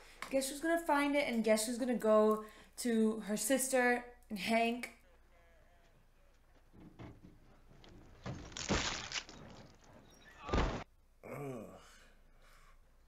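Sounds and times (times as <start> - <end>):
person groaning: 11.2 - 12.0.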